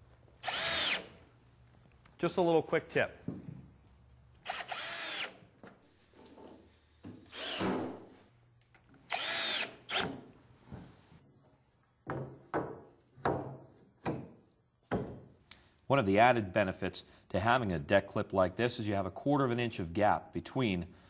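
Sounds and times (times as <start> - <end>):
power drill driving screws: 0.4 - 1.2, 4.4 - 5.4, 7.3 - 7.8, 9.1 - 10.2.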